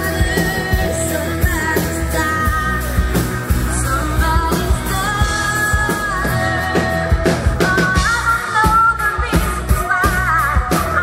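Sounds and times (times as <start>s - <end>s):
bass guitar: 0.0s - 11.0s
electric guitar: 0.0s - 11.0s
woman singing: 0.0s - 11.0s.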